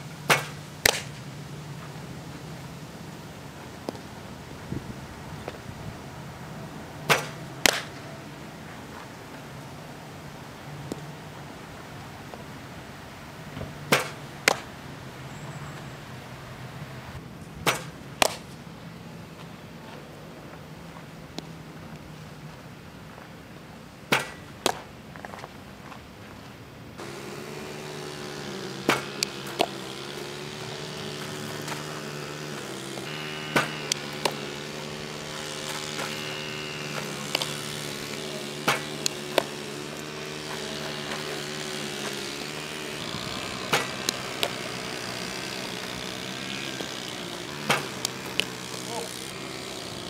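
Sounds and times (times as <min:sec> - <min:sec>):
steady engine hum: 0:00.0 - 0:50.0
softball popping into mitt: 0:00.3 - 0:01.2, 0:07.1 - 0:07.9, 0:17.6 - 0:18.5, 0:28.8 - 0:29.9, 0:38.6 - 0:40.0.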